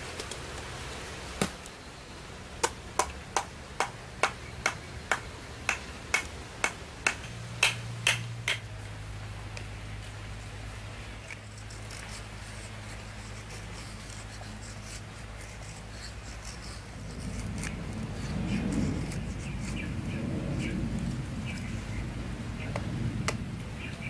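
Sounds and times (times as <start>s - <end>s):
knife scraping wood: 11.2s - 19.9s.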